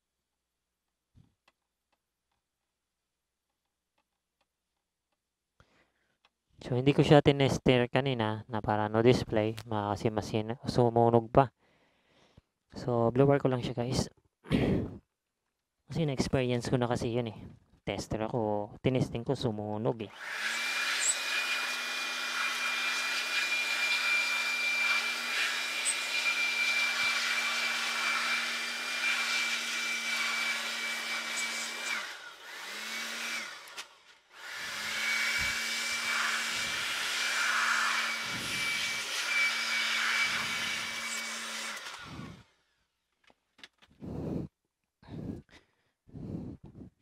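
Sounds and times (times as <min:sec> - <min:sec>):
electric blower whining: 0:20.1 - 0:42.6.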